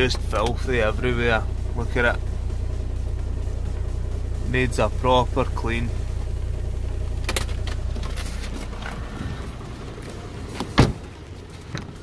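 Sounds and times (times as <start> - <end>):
low steady rumble: 0.0 - 12.0
car door shutting: 7.2 - 12.0.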